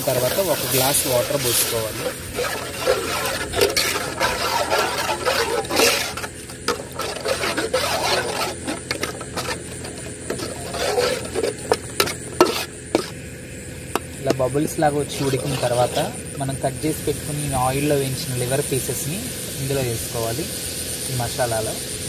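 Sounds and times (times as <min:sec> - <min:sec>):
metal spatula scraping pan: 0:00.0 - 0:13.2, 0:15.0 - 0:16.2.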